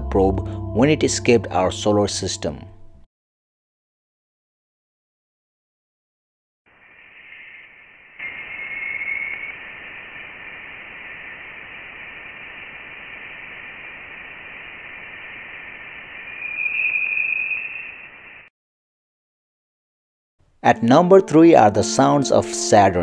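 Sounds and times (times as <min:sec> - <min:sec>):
steady radio-like hiss: 0:06.7 - 0:18.5
thin whistling tone: 0:06.7 - 0:18.5.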